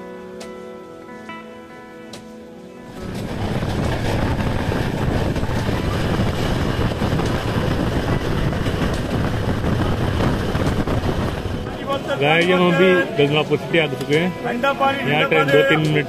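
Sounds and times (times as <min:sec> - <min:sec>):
wind noise: 0:02.9 - 0:13.2
train wheels rumbling on track: 0:02.9 - 0:14.5.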